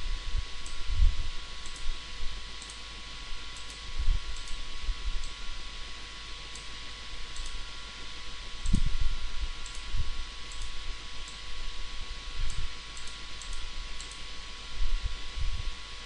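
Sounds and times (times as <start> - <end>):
hiss and electrical whine: 0.0 - 16.0
computer mouse clicks: 1.6 - 1.9, 2.6 - 2.8, 3.6 - 3.8, 4.4 - 4.6, 6.5 - 6.7, 7.3 - 7.6, 9.6 - 9.9, 10.5 - 11.5, 12.5 - 14.3.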